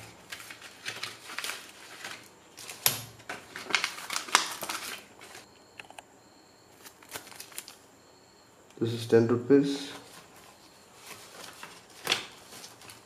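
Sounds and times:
plastic bags crinkling: 0.0s - 5.4s, 6.8s - 7.8s, 10.0s - 13.0s.

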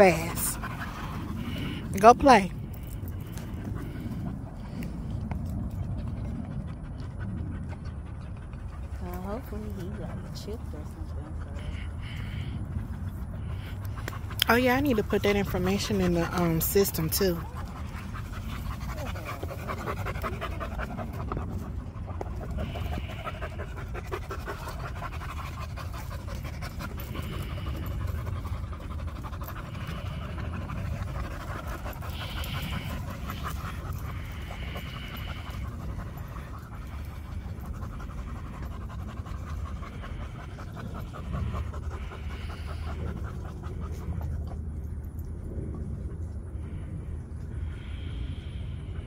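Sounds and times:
dogs panting: 0.0s - 49.0s.

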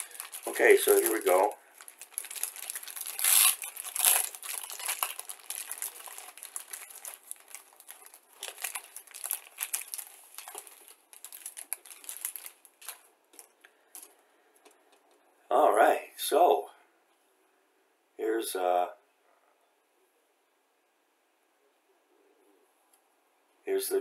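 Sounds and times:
plastic bag crinkling: 0.0s - 14.2s.

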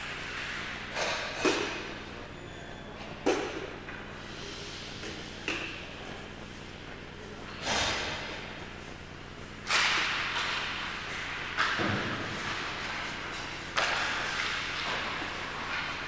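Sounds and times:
steady low hum: 0.0s - 16.0s
reverberant crashing noises: 9.7s - 15.2s.

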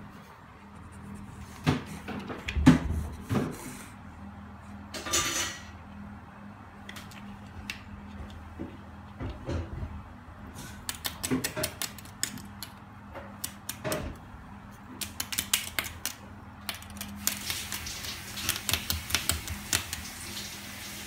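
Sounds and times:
dog claws clicking on tile: 10.8s - 14.1s, 15.0s - 20.2s.

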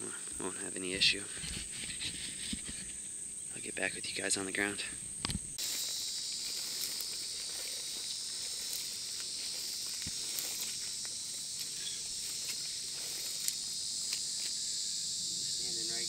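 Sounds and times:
insects buzzing: 0.0s - 16.0s
footsteps through tall grass: 5.6s - 14.6s.

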